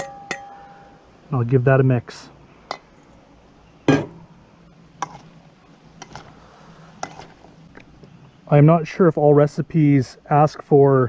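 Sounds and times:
spoon clinking against metal bowl: 0:00.0 - 0:00.9.

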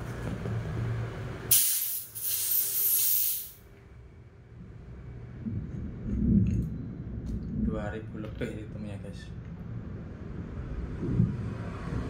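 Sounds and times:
compressed air hissing: 0:01.5 - 0:03.6.

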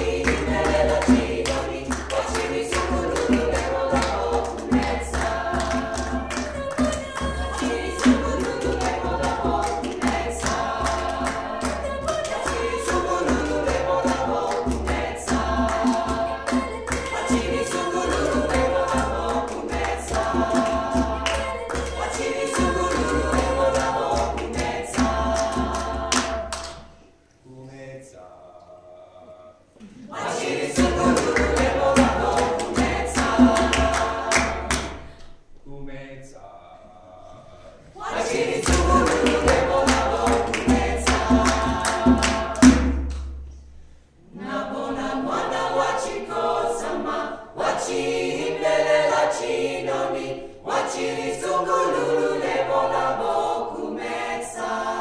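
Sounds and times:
djembe beat: 0:00.0 - 0:26.5, 0:30.7 - 0:34.9, 0:38.3 - 0:43.2
hand claps: 0:00.0 - 0:27.0, 0:30.7 - 0:35.3, 0:38.3 - 0:43.5
a cappella choir singing in harmony: 0:00.0 - 0:35.5, 0:36.2 - 0:55.0.

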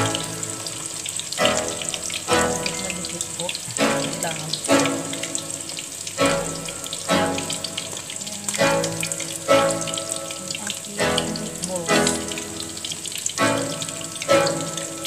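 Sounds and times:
background music: 0:00.0 - 0:15.0
oil sizzling while deep-frying: 0:00.0 - 0:15.0.

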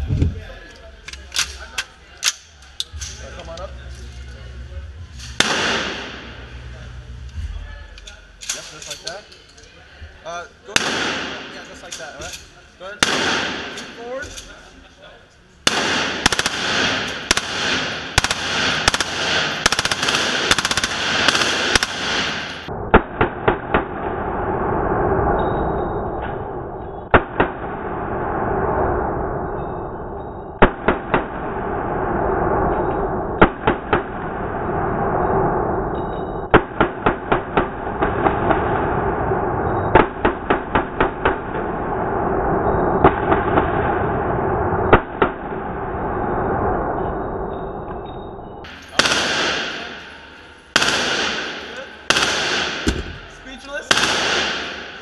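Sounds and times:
booming gunshot echoes: 0:05.3 - 0:06.7, 0:10.7 - 0:11.7, 0:13.0 - 0:13.9, 0:15.6 - 0:25.0, 0:30.6 - 0:35.4, 0:36.5 - 0:47.5, 0:48.7 - 0:55.0
automatic rifle firing: 0:05.4 - 0:06.3, 0:10.7 - 0:11.6, 0:13.0 - 0:14.0, 0:15.6 - 0:24.0, 0:36.5 - 0:38.7, 0:39.9 - 0:41.7, 0:48.9 - 0:53.3, 0:53.9 - 0:55.0.

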